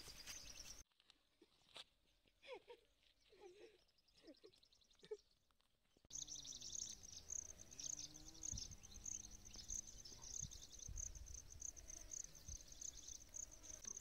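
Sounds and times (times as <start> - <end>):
insects chirping and trilling: 6.1 - 14.0.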